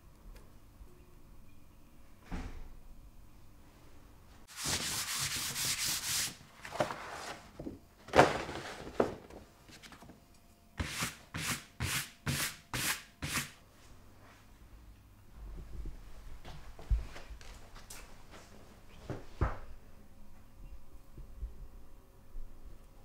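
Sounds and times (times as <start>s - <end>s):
pad rubbing on paper: 4.5s - 6.4s
paper rustling: 4.5s - 10.1s.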